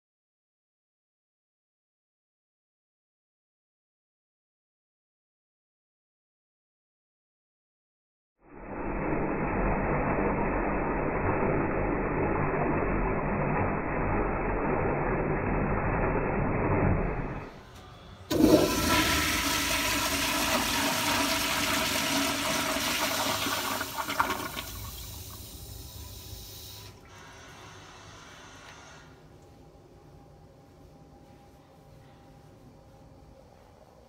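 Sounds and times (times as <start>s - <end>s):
water gurgles: 18.3s - 25.9s
toilet flushing: 18.3s - 29.0s.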